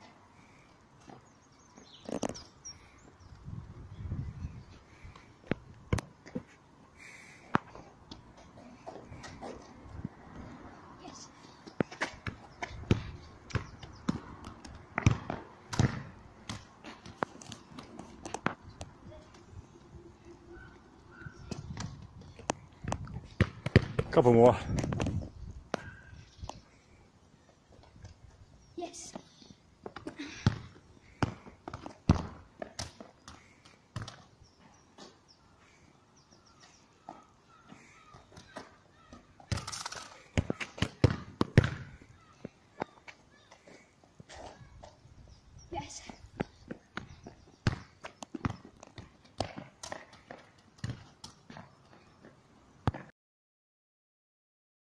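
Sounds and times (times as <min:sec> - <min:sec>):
football thuds on tarmac: 0:11.7 - 0:18.8, 0:21.5 - 0:25.3, 0:29.8 - 0:34.2, 0:40.4 - 0:42.1, 0:46.4 - 0:51.7, 0:52.8 - 0:53.1.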